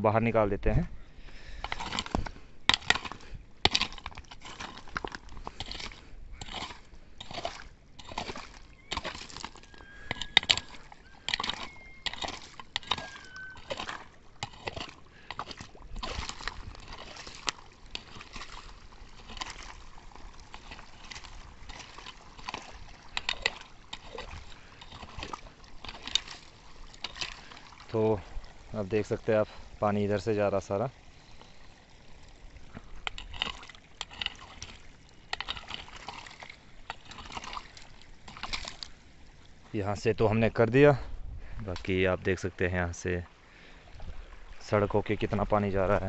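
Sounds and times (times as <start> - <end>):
water splashing and sloshing: 0.0 - 46.0
digging tool scraping gravel: 1.5 - 28.2, 33.0 - 38.9.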